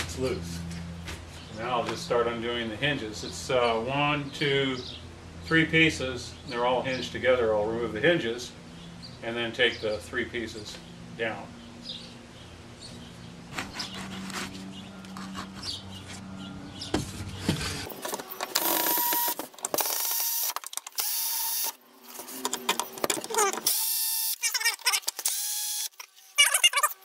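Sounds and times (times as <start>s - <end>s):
cordless drill whine: 18.5s - 21.8s, 23.5s - 24.4s, 25.2s - 26.4s.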